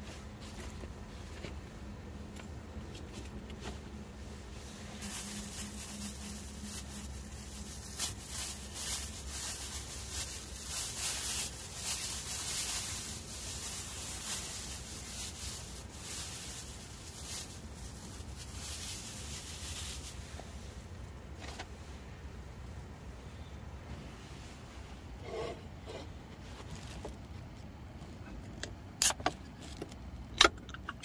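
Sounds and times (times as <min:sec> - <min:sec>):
plastic bag crinkling: 0:04.9 - 0:21.0.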